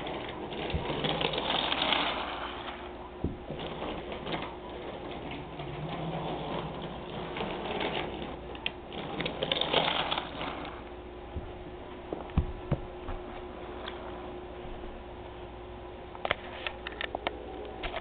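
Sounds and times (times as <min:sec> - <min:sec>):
toy train motor hum: 0:00.0 - 0:10.9.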